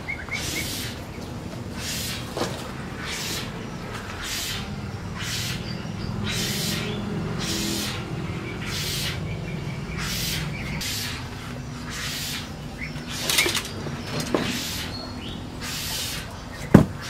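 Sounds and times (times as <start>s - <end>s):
birds calling: 0.0s - 17.0s
high rustling hiss: 10.0s - 17.0s.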